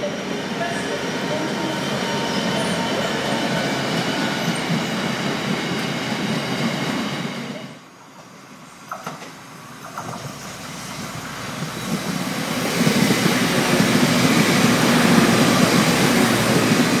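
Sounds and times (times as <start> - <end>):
diesel train passing: 0.0 - 17.0.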